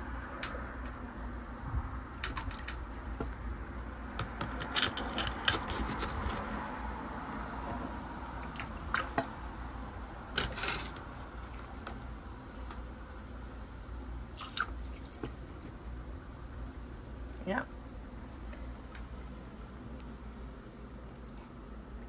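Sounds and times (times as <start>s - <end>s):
baster squishing and slurping water: 8.3s - 10.3s, 14.3s - 17.3s.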